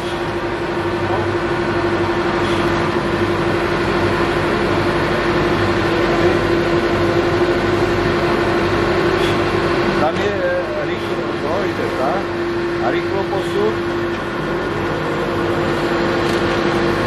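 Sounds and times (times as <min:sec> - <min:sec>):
lathe running with whine: 0:00.0 - 0:17.0.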